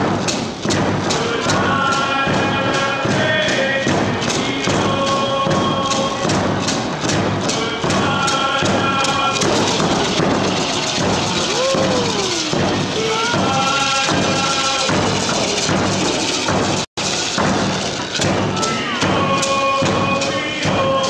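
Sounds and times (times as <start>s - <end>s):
drum struck in steady beat: 0.0s - 21.0s
voices singing long notes: 7.4s - 15.6s.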